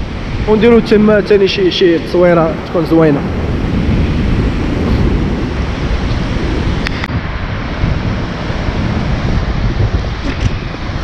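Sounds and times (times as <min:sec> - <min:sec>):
sea surf breaking on rocks: 0:00.0 - 0:11.0
wind on microphone: 0:00.0 - 0:11.0.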